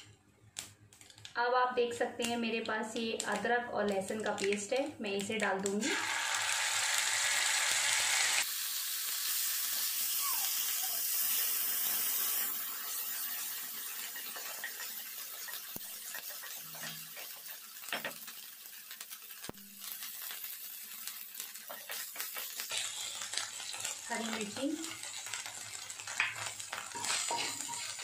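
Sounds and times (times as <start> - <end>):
paste sizzling in hot oil: 5.6 - 28.0.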